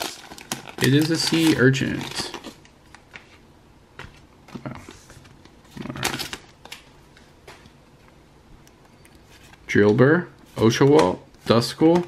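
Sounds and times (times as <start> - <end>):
trading cards rustling: 0.0 - 3.4.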